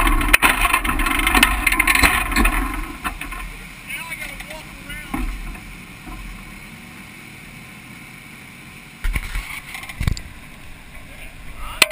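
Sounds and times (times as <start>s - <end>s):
faint hiss: 2.8s - 11.9s.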